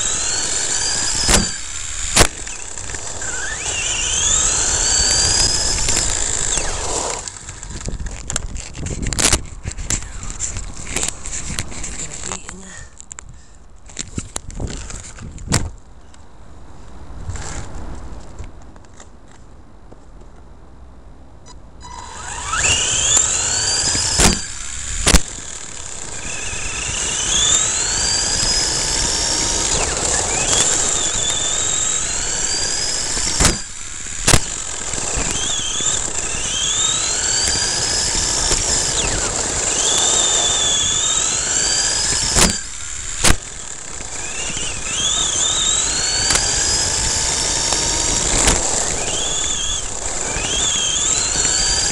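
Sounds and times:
electric motor whining: 0:00.0 - 0:12.7, 0:21.8 - 0:51.9
sharp knocks: 0:01.2 - 0:01.6, 0:33.3 - 0:34.5, 0:42.2 - 0:42.6.

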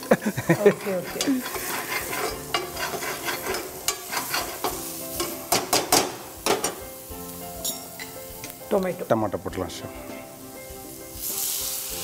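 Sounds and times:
frying sizzle: 0:00.0 - 0:12.0
metal spatula scraping pan: 0:00.3 - 0:06.8
spatula clinking against pan: 0:00.6 - 0:06.8.

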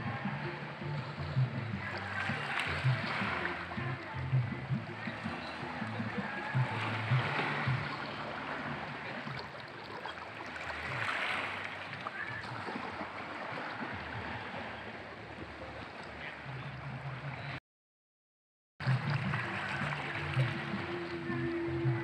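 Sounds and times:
sea waves lapping on rocks: 0:00.0 - 0:16.4, 0:18.8 - 0:22.0.

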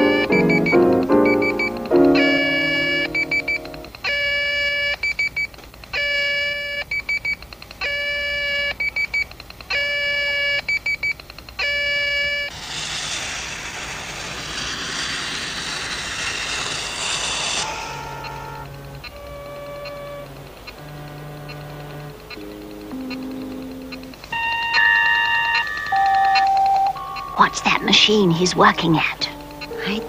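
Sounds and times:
rapid short electronic beeps: 0:00.0 - 0:03.8
held electronic tone: 0:00.0 - 0:03.9, 0:12.4 - 0:27.4
steady rushing hiss: 0:12.5 - 0:19.4.

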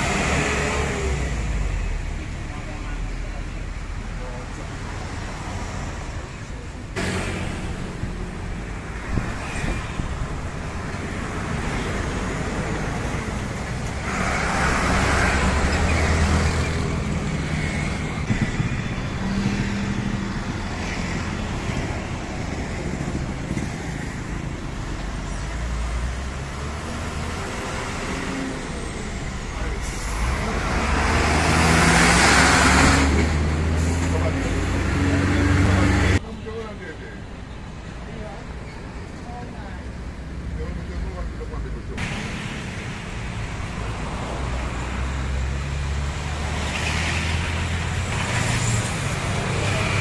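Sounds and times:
heavy trucks driving past: 0:04.8 - 0:36.3, 0:41.8 - 0:50.0.

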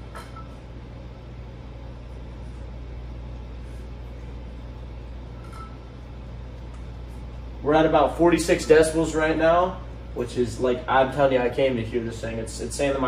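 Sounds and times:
fan running with low hum: 0:00.0 - 0:13.0.

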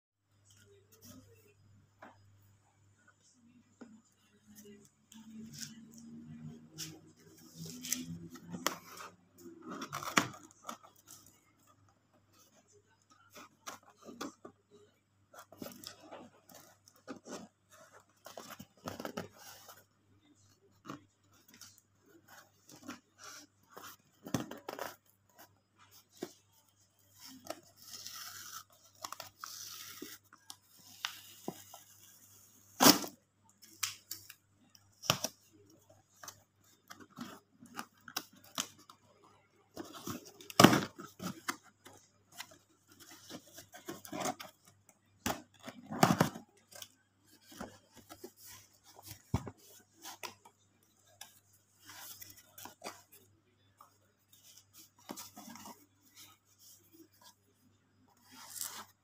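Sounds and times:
cardboard rustling and scraping: 0:39.7 - 0:53.3.

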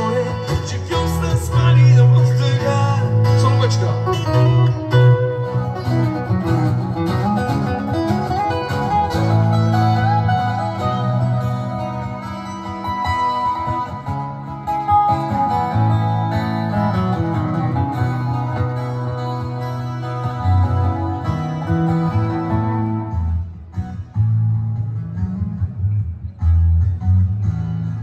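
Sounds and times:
live guitar music over loudspeakers: 0:00.0 - 0:28.0.

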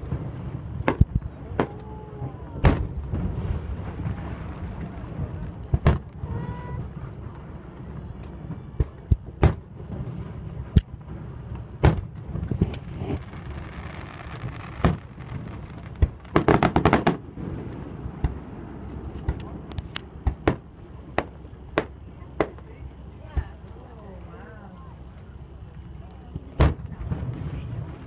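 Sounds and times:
steady low rumble: 0:00.0 - 0:28.0
firework shells bursting: 0:02.6 - 0:22.7.

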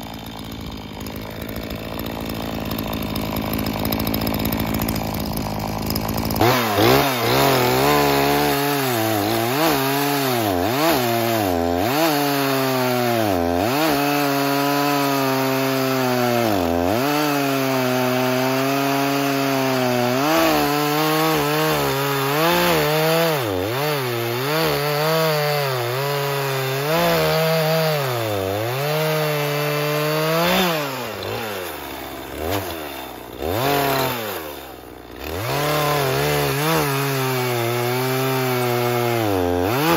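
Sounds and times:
chainsaw cutting log: 0:00.0 - 0:39.9.

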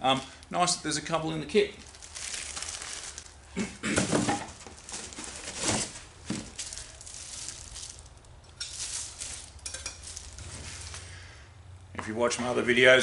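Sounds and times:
plastic bags crinkling: 0:01.2 - 0:11.2
part scraping out of foam packing: 0:04.0 - 0:08.0.

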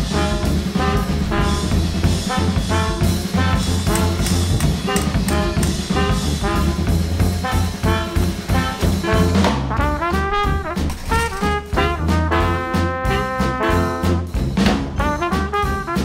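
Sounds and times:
upbeat jazzy music with brass: 0:00.0 - 0:16.0.

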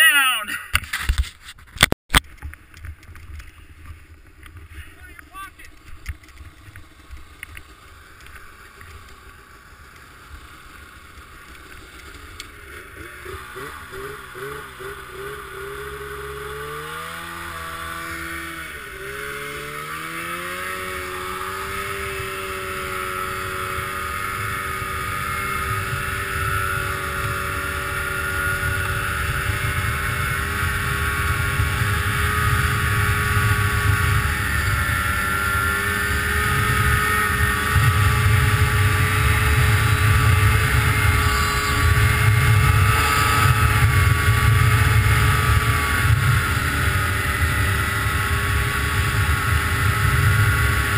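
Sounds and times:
snowmobile engine revving: 0:03.5 - 0:50.9
deep rumble: 0:25.7 - 0:50.9.

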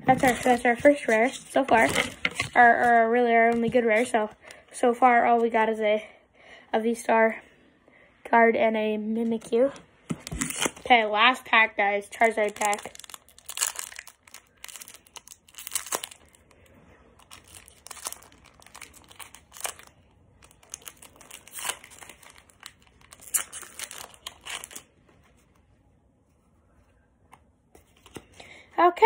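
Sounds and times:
foil wrapper crinkling and tearing: 0:12.1 - 0:24.9.

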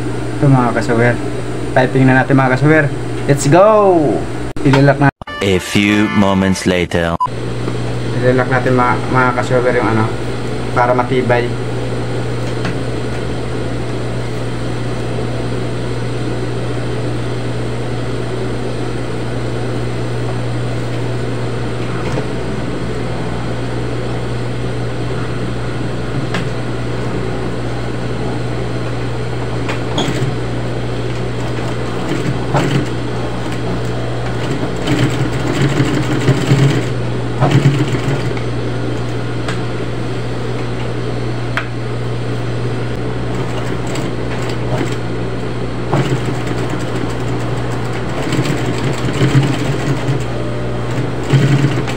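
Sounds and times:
sewing machine humming: 0:29.6 - 0:39.1, 0:43.3 - 0:45.2, 0:45.8 - 0:51.9
sewing machine clicks: 0:47.9 - 0:50.3, 0:50.9 - 0:51.9.

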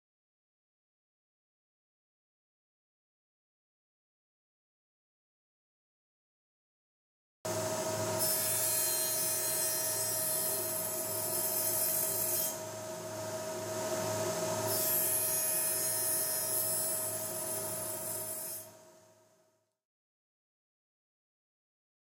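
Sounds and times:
table saw motor hum: 0:07.5 - 0:18.8
saw blade cutting wood: 0:08.2 - 0:12.7, 0:14.6 - 0:18.8.

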